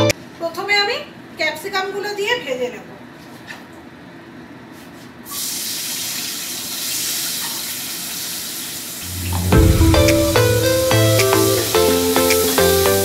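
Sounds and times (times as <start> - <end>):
background music: 9.1 - 13.0.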